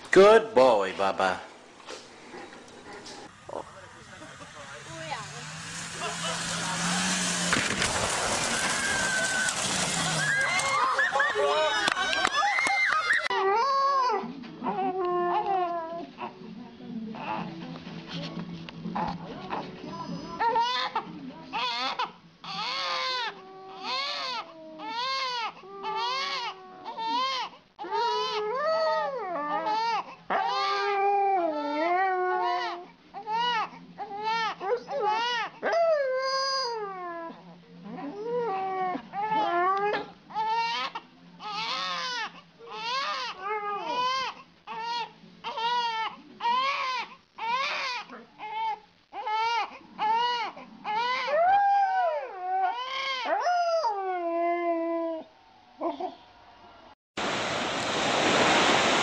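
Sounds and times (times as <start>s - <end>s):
dog howling and whining: 6.0s - 16.1s, 22.5s - 32.9s, 34.1s - 40.8s, 42.8s - 44.3s, 49.3s - 56.2s
baby crying: 21.6s - 28.4s, 40.3s - 51.3s.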